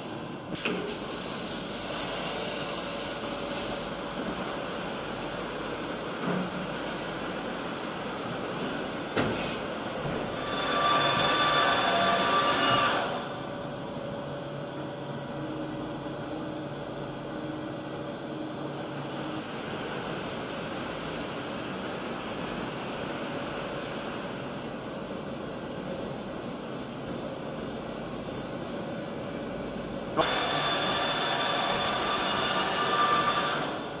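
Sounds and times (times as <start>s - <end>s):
lower mechanical hum: 0.0s - 34.0s
machine whine of high tones: 10.2s - 22.7s, 30.2s - 34.0s.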